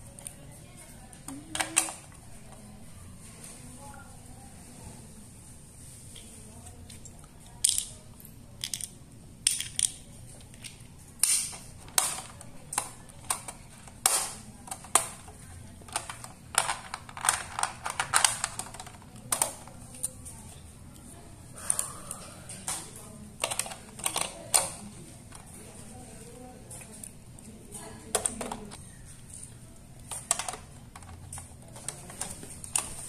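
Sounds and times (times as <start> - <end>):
plastic toy parts clicking: 7.5 - 8.0, 8.6 - 20.1, 23.4 - 24.8.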